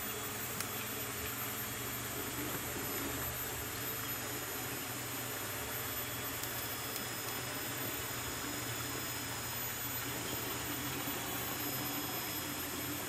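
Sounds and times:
faint high insect tones: 0.0s - 13.0s.

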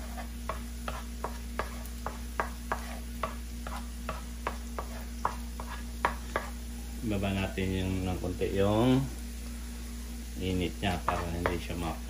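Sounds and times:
wooden spoon scraping a wok: 0.0s - 6.6s, 10.9s - 12.0s.

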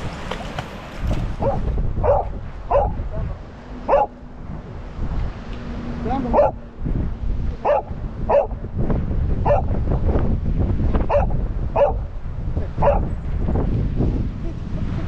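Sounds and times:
wind rumble on microphone: 0.0s - 15.0s
dog barking: 1.4s - 3.3s, 3.9s - 4.2s, 6.3s - 6.6s, 7.6s - 8.6s, 9.4s - 9.7s, 11.1s - 12.0s, 12.8s - 13.1s.

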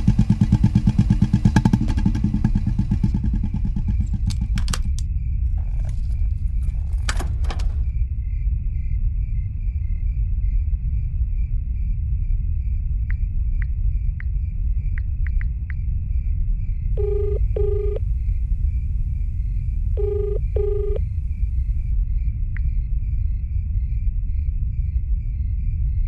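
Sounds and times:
steady low rumble: 0.0s - 26.0s
double-beep ringback tone: 17.0s - 18.0s, 20.0s - 21.2s
phone keypad ticks: 17.0s - 18.0s, 20.0s - 21.0s.

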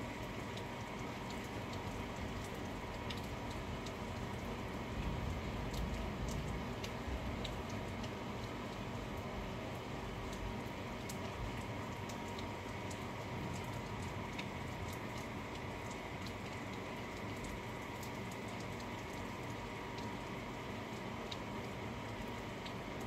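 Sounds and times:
faint steady hum: 0.0s - 23.0s
steady rain: 0.0s - 23.0s
drops ticking on a surface: 0.5s - 20.3s.

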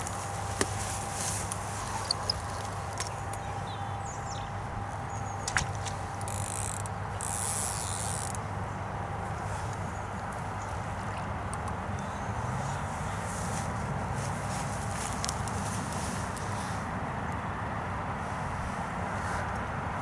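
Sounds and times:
low outdoor hum: 0.0s - 20.0s
fishing reel clicks: 6.2s - 8.4s.

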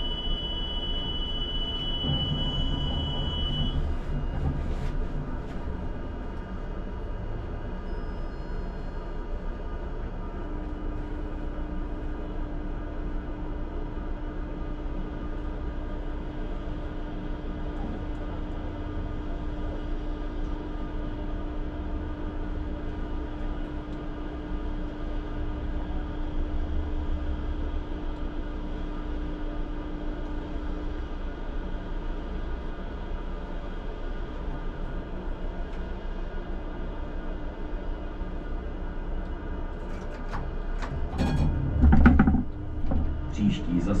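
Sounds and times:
tram wheels rumbling on track: 1.6s - 7.8s, 33.6s - 44.0s
steady hum: 37.7s - 44.0s.

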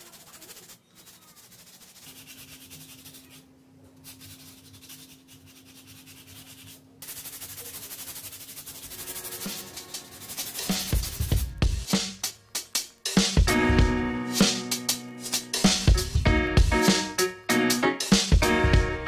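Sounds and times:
cloth rubbing painted surface: 0.0s - 11.6s.

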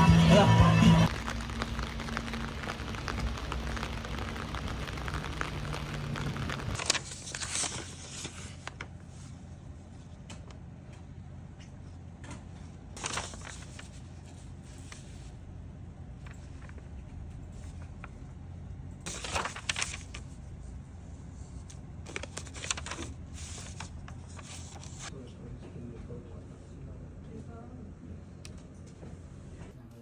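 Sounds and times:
rain pattering on an umbrella: 1.0s - 7.4s, 13.0s - 15.1s, 19.1s - 20.4s, 22.1s - 25.1s
paper rustling: 1.0s - 9.4s, 13.0s - 15.3s, 16.2s - 16.9s, 19.0s - 20.4s, 21.4s - 25.1s.

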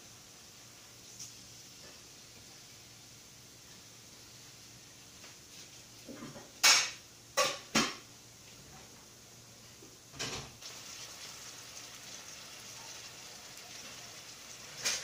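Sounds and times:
steaks sizzling in a frying pan: 10.6s - 15.0s.

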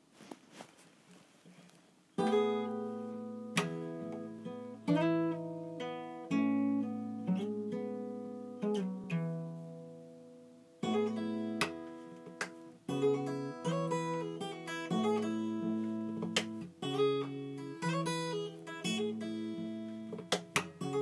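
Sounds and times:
acoustic guitar chords strummed: 2.2s - 21.0s.

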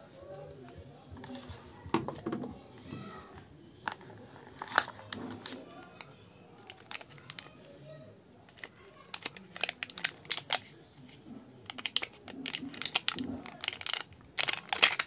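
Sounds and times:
plastic wrapping crinkling: 3.9s - 7.6s, 8.5s - 10.7s, 11.7s - 15.0s.

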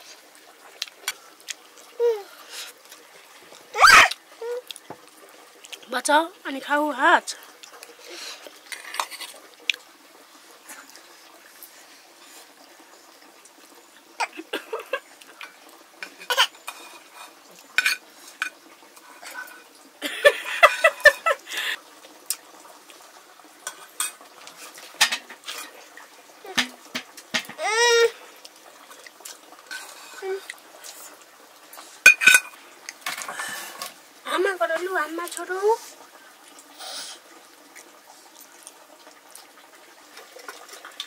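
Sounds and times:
cutlery and dishes clinking: 16.1s - 18.6s, 23.7s - 25.7s, 32.1s - 33.9s.

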